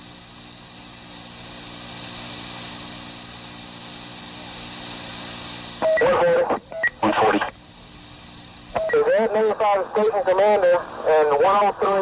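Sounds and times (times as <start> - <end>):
tape hum and hiss: 0.0 - 12.0
burst of radio traffic: 5.8 - 7.6, 8.8 - 12.0.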